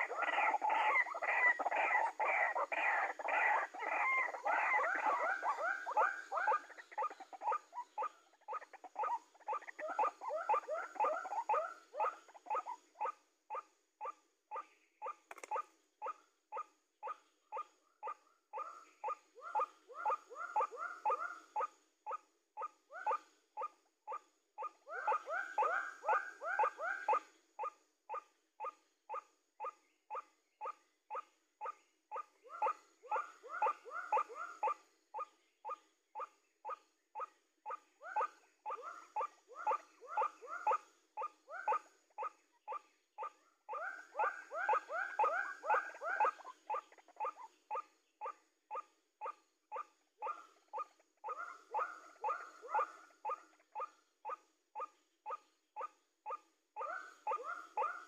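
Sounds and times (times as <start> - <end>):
waterhen kwak calls: 0.0 - 7.4.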